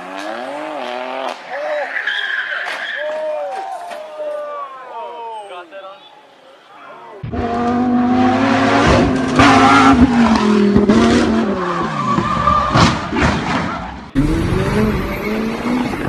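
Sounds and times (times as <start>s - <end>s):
tyres squealing: 0.1s - 4.1s
sports car engine revving: 7.2s - 11.8s.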